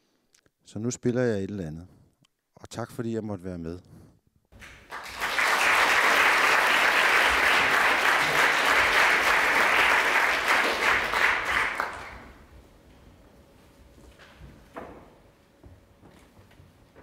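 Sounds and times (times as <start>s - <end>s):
audience applauding: 4.6s - 12.5s.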